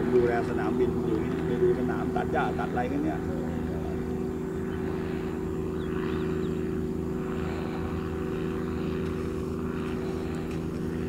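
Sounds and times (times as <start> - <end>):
light aircraft engine droning overhead: 0.0 - 11.0.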